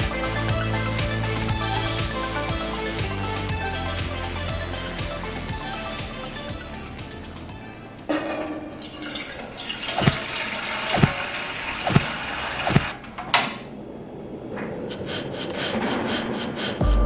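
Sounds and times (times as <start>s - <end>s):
water pouring into metal pot: 8.6s - 12.7s.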